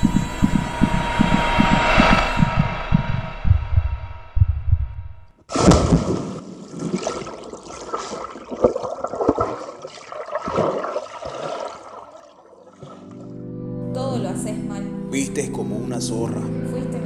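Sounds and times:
low heartbeat-like thumping: 0:00.0 - 0:05.3
body splashing into pool: 0:05.5 - 0:13.2
underwater bubbling: 0:05.9 - 0:13.2.

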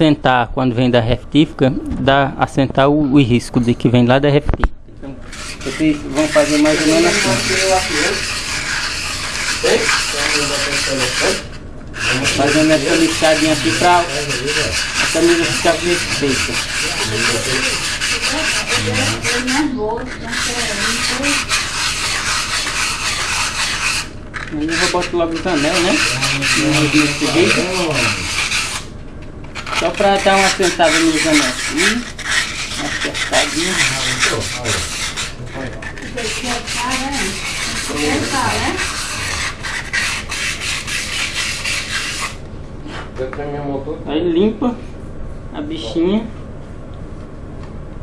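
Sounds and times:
sandpaper rasping on metal: 0:05.3 - 0:28.9, 0:29.5 - 0:42.4.

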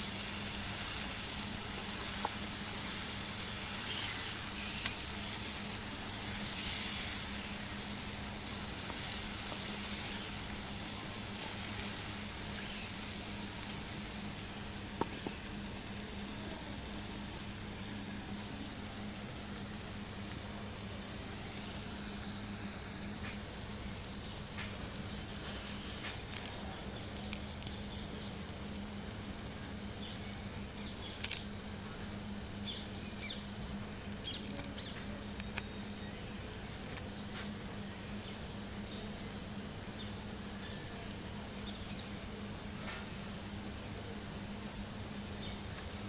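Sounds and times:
omelette sizzling in a pan: 0:00.0 - 0:31.2.

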